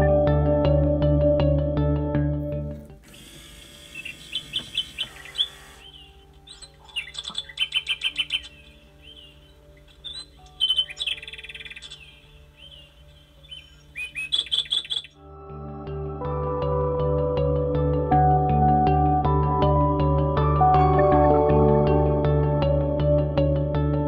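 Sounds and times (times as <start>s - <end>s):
soft background music: 0.0s - 24.0s
electronic bird chirps: 3.8s - 15.2s.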